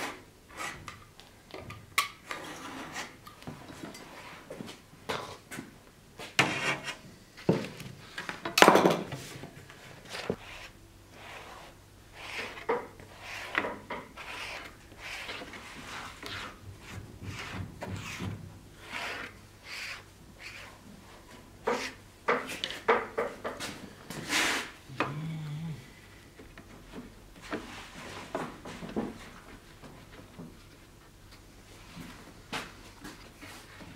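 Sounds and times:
foam brush spreading glue: 10.0s - 22.0s, 24.2s - 24.8s.

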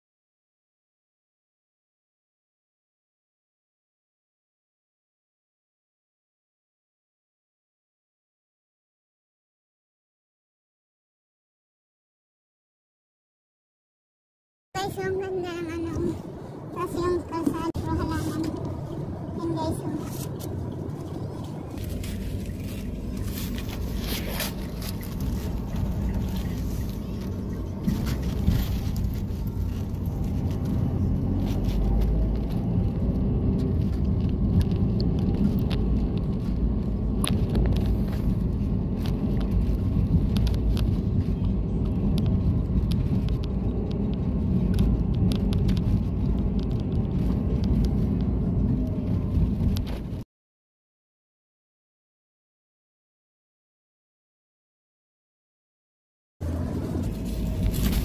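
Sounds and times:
engine and tyre rumble: 14.8s - 50.2s, 56.4s - 58.0s.

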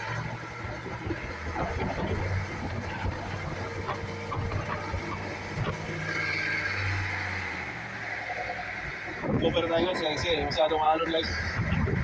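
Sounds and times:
waves splashing along hull: 0.0s - 9.4s
boat engine droning: 0.0s - 12.0s.

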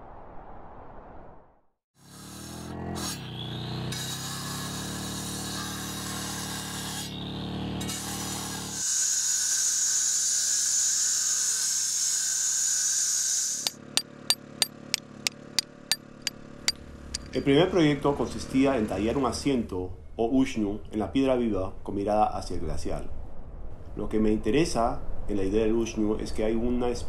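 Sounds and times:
angle grinder cutting rock: 3.9s - 7.1s
hammer striking chisel on stone: 17.1s - 17.5s.

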